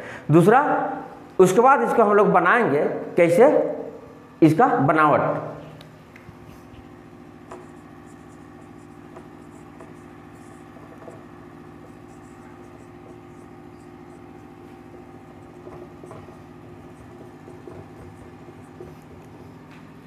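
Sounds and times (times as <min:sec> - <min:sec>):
steady low hum: 0:00.0 - 0:20.0
marker squeaking on whiteboard: 0:06.4 - 0:19.6.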